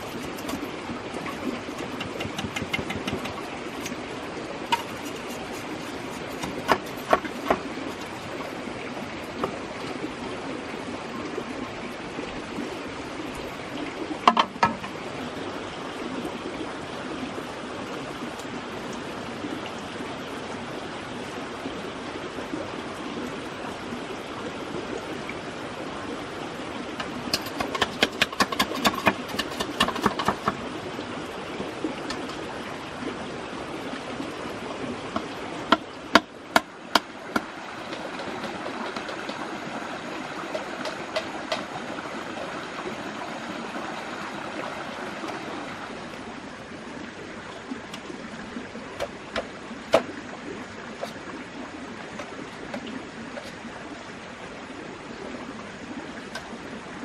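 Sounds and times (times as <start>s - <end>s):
steady rushing water: 0.0s - 57.0s
knife chopping bamboo: 1.7s - 4.0s, 4.7s - 8.1s, 27.4s - 30.6s, 40.5s - 41.7s.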